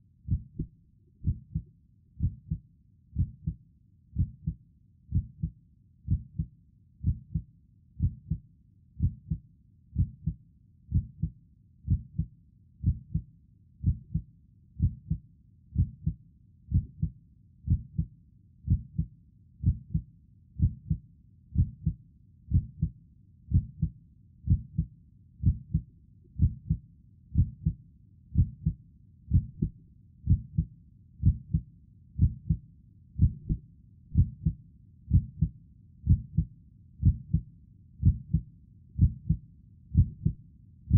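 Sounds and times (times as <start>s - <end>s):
heartbeat: 0.3s - 2.6s, 3.2s - 3.6s, 4.2s - 8.4s, 9.0s - 9.4s, 10.0s - 15.2s, 15.8s - 18.1s, 18.7s - 21.0s, 21.6s - 32.6s, 33.2s - 40.9s.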